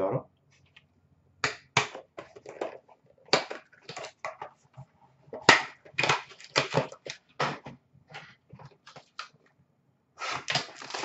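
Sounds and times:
cardboard and plastic rustling: 2.1 - 9.5, 10.2 - 11.0.

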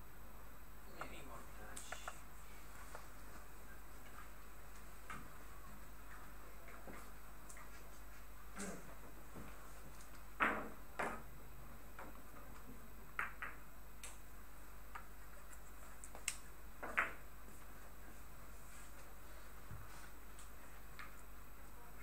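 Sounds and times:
billiard balls clicking together: 9.9 - 14.3, 14.9 - 17.3.

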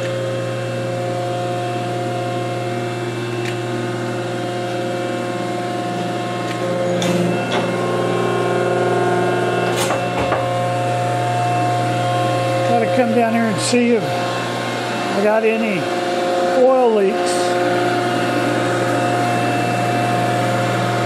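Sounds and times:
hydraulic pump humming and whining: 0.0 - 21.0
machine knocks: 9.8 - 10.5.

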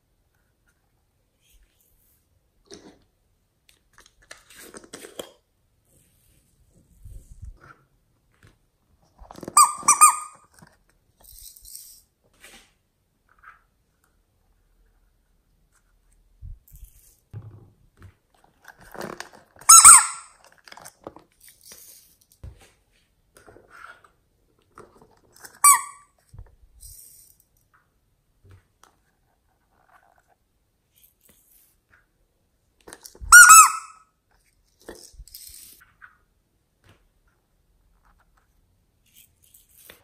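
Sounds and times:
plastic cups squeaking: 9.2 - 10.7, 18.8 - 21.0, 25.1 - 26.2.

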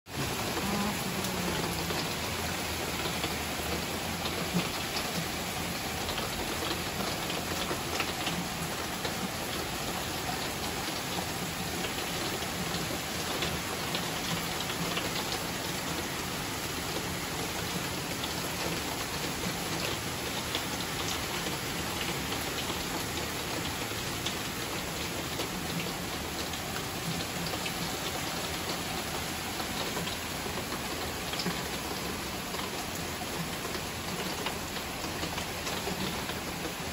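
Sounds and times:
heavy rain on leafy trees: 0.1 - 36.9.

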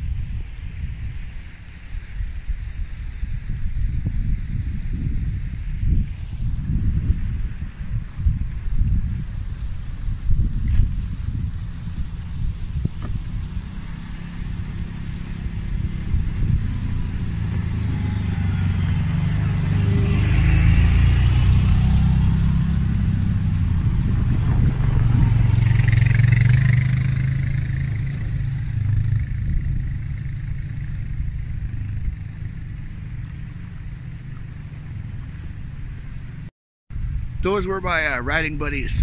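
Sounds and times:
quad engines passing by: 5.9 - 36.5.

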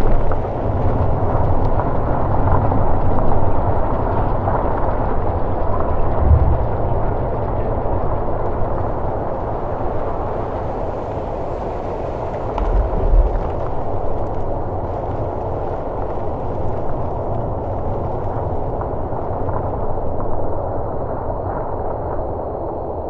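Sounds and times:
low rumbling noise: 0.0 - 22.6
heavy low thud: 6.2 - 7.4, 12.6 - 14.4.

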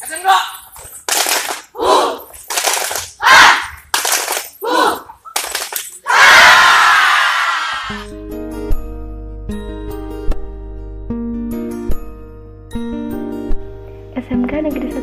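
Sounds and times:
students shouting a chant: 1.8 - 2.3, 3.2 - 3.7, 4.6 - 5.1, 6.1 - 7.9.

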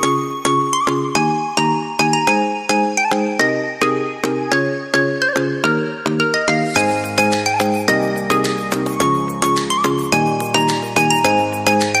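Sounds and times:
bouncy music with bright notes: 0.0 - 12.0.

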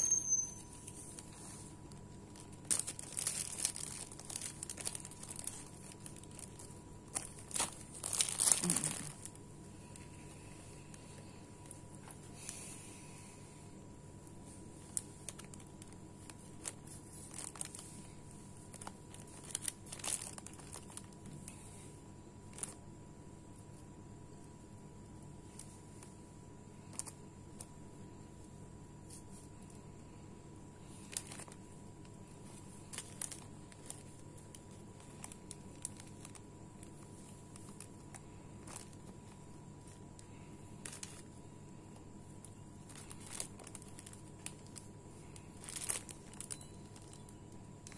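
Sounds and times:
plastic bags crinkling: 0.0 - 12.7, 14.6 - 21.6, 22.4 - 22.8, 26.8 - 27.7, 30.8 - 47.9
low steady hum: 0.0 - 47.9.

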